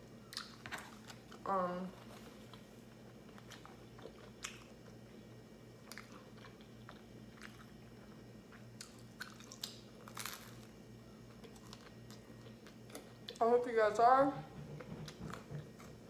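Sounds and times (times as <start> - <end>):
soft chewing and mouth clicks: 0.3 - 10.4, 11.2 - 13.4.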